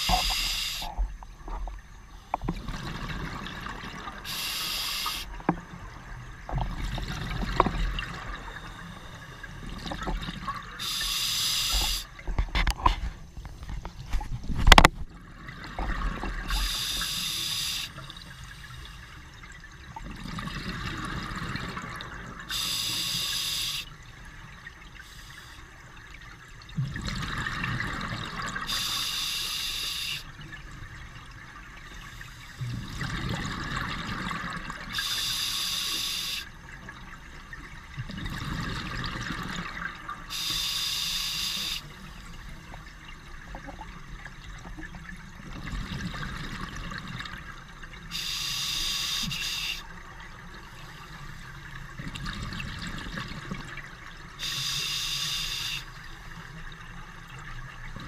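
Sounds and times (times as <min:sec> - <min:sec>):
regulator inhale hiss: 0:00.0 - 0:00.9, 0:04.3 - 0:05.4, 0:10.8 - 0:12.1, 0:16.5 - 0:18.8, 0:22.5 - 0:23.9, 0:28.7 - 0:30.3, 0:35.0 - 0:36.5, 0:40.3 - 0:41.9, 0:48.1 - 0:49.9, 0:54.4 - 0:56.0
exhaust bubbles gushing: 0:01.9 - 0:04.4, 0:05.3 - 0:11.0, 0:19.4 - 0:22.6, 0:26.6 - 0:28.8, 0:32.6 - 0:35.0, 0:36.6 - 0:40.3, 0:42.4 - 0:48.3, 0:49.9 - 0:54.5.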